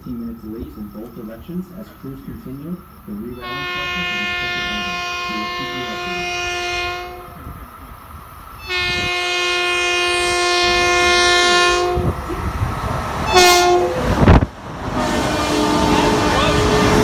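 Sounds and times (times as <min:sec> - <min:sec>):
train rushing past: 0:00.0 - 0:17.0
train horn blasts: 0:03.4 - 0:07.6, 0:08.6 - 0:12.2, 0:13.2 - 0:17.0.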